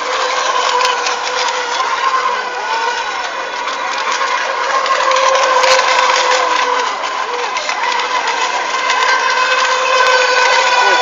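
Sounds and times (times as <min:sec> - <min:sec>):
electric motors whining: 0:00.0 - 0:11.0.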